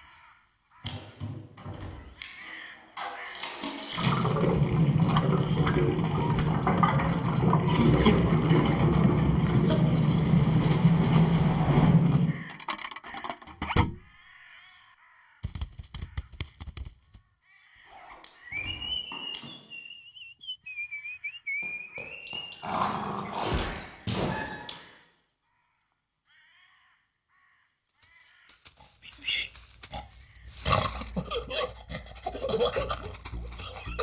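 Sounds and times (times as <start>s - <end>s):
cartoon thunk: 13.6s - 14.0s.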